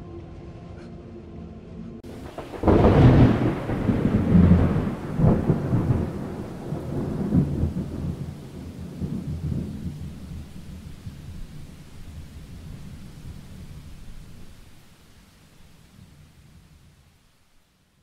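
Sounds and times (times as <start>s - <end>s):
thunder clap and rumble: 2.0s - 14.8s.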